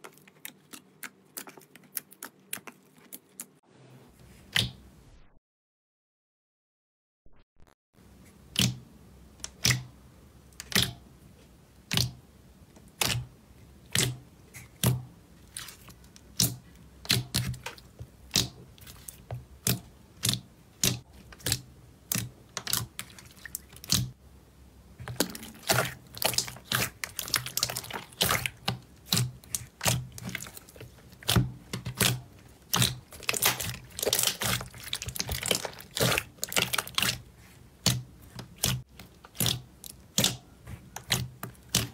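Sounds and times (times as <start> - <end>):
slime squelching wet clicks: 0.0 - 3.5, 8.5 - 8.8, 9.4 - 9.9, 10.5 - 11.0, 11.8 - 12.2, 12.8 - 24.2, 25.0 - 41.9.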